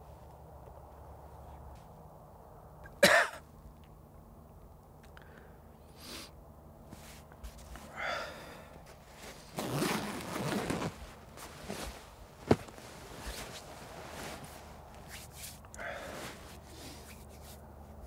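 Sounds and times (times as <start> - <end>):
sleeping bag fabric rustling: 6.9 - 18.0
man sighing: 7.9 - 8.7, 15.7 - 16.2.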